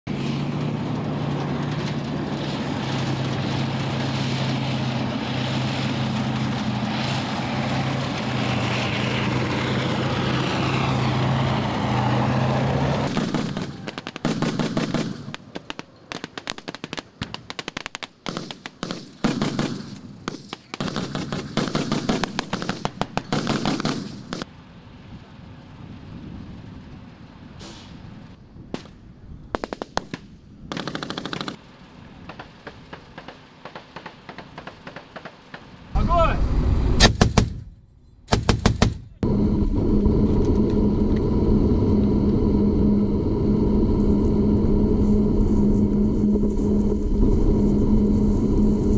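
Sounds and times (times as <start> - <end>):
tank engine droning: 0.1 - 15.6, 30.7 - 48.9
automatic weapons fire: 13.1 - 24.4, 29.6 - 31.6, 38.3 - 39.1.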